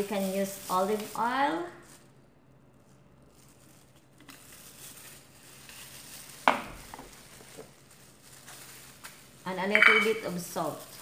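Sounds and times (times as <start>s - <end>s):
faint handling sounds: 2.7s - 11.0s
glass bottle knocking on tiles: 9.7s - 10.2s.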